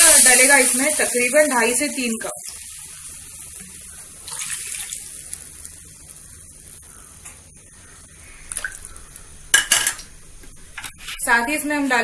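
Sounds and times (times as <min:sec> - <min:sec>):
water pouring and splashing: 0:02.4 - 0:05.8
bubbling: 0:02.4 - 0:07.0.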